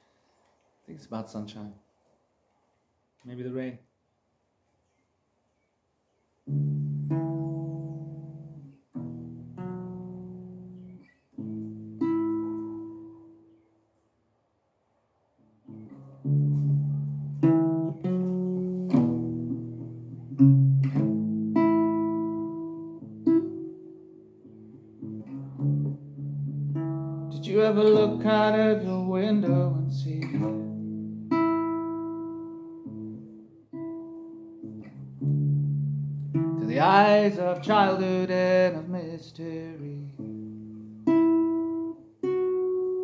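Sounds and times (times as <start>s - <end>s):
acoustic guitar chords ringing: 6.5s - 13.5s, 15.6s - 43.0s
man singing: 27.3s - 30.8s, 36.6s - 40.2s.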